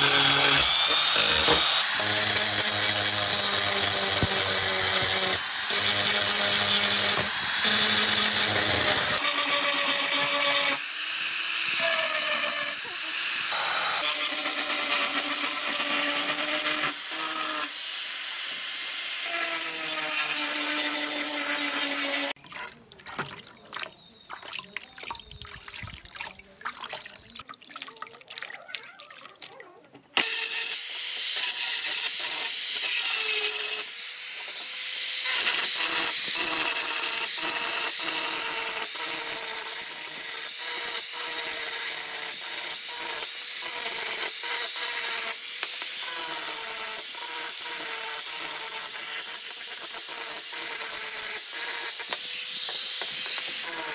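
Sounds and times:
angle grinder grinding metal: 0:00.0 - 0:22.4, 0:30.1 - 0:53.9
small knocks and splashes: 0:22.4 - 0:29.7.

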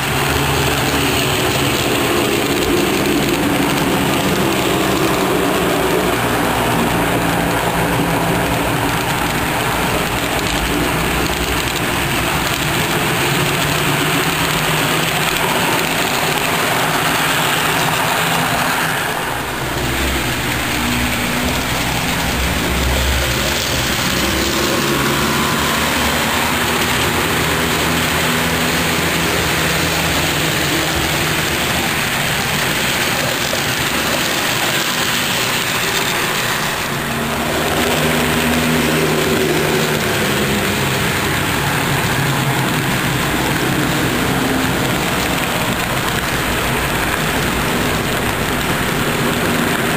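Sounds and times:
model locomotive engine drone: 0:00.0 - 0:49.9
model train rolling: 0:00.0 - 0:49.9.

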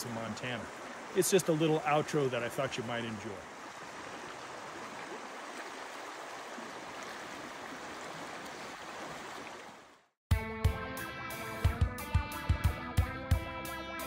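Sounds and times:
guitar music: 0:10.3 - 0:14.0.

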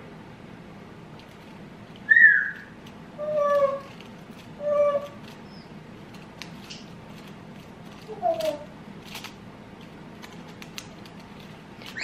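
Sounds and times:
bird chirp: 0:02.1 - 0:03.9, 0:04.6 - 0:05.8.

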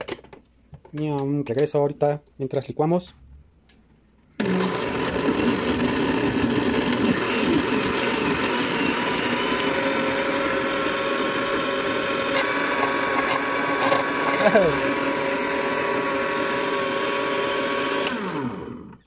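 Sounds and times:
blender motor running: 0:04.4 - 0:19.0.

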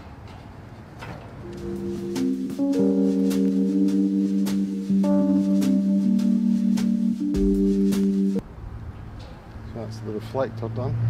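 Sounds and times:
sustained ringing chords: 0:01.4 - 0:08.4
light click beat: 0:01.5 - 0:08.4.

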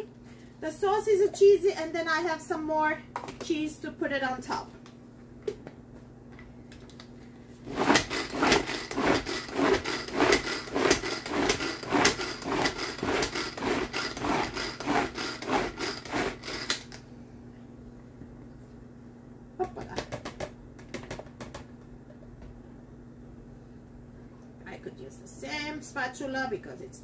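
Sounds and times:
pull-cord chopper whirring: 0:07.7 - 0:16.9.

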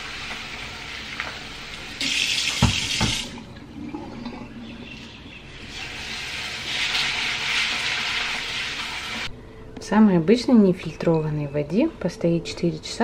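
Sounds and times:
tap water splashing into bowl: 0:02.0 - 0:03.5.

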